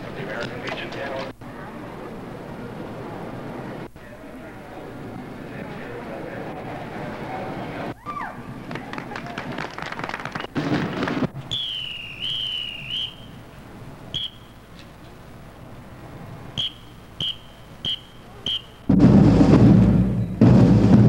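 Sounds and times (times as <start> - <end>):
whistle blasts and tweets: 11.4 - 13.4, 14.1 - 14.6, 16.6 - 18.9, 20.2 - 20.4
loud band playing: 17.9 - 21.0.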